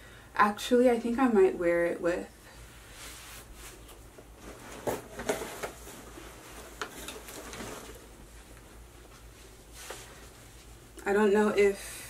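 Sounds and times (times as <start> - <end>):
clothing rustling: 2.8 - 11.0.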